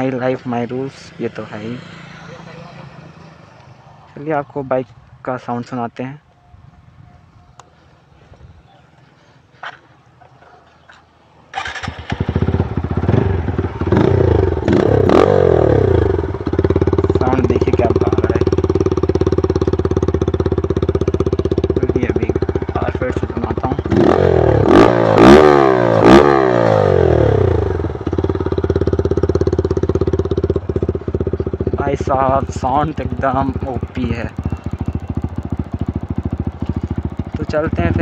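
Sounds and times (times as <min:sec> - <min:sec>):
engine revving in sharp blips: 0:11.5 - 0:31.6, 0:33.0 - 0:38.0
loud motorcycle engine idling: 0:11.6 - 0:38.0.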